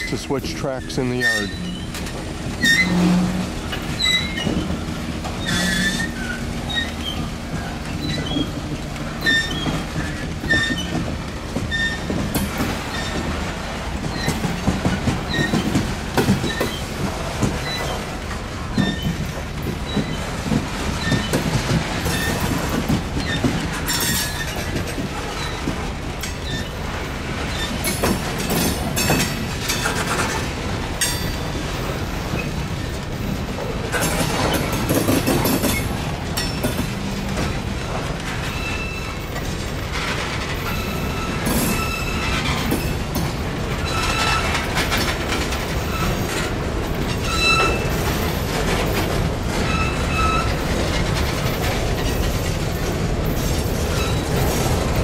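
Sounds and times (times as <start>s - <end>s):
train cars rolling on rails: 0.0s - 55.0s
high wheel squeals: 0.8s - 2.0s, 2.6s - 4.8s, 5.4s - 8.6s, 9.2s - 11.0s, 11.7s - 12.1s, 15.3s - 15.7s, 38.4s - 39.4s, 40.6s - 42.9s, 43.8s - 44.6s, 47.2s - 48.0s, 49.6s - 50.6s, 53.9s - 54.4s.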